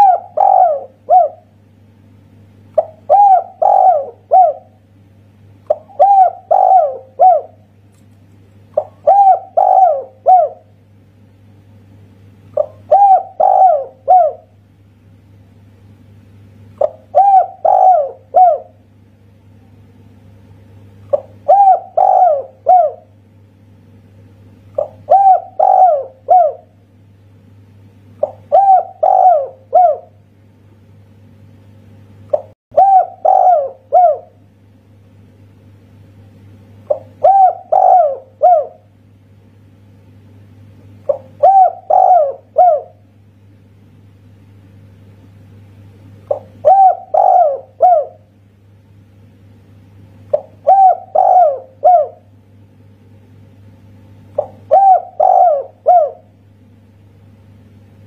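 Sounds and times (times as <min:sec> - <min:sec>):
dove cooing: 0:00.0 - 0:01.6, 0:02.8 - 0:04.8, 0:05.7 - 0:07.7, 0:08.8 - 0:10.7, 0:12.5 - 0:14.6, 0:16.8 - 0:18.8, 0:21.1 - 0:23.2, 0:24.7 - 0:26.8, 0:28.2 - 0:30.2, 0:32.3 - 0:34.4, 0:36.8 - 0:38.9, 0:41.0 - 0:43.1, 0:46.2 - 0:48.3, 0:50.3 - 0:52.3, 0:54.4 - 0:56.3
low steady hum: 0:00.0 - 0:58.0.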